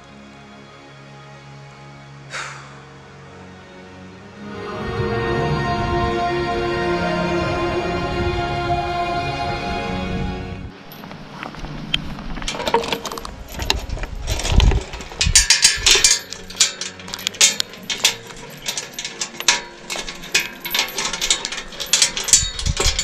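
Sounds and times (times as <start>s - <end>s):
metal chain clinking and rattling: 10.9s - 11.5s, 12.1s - 23.0s.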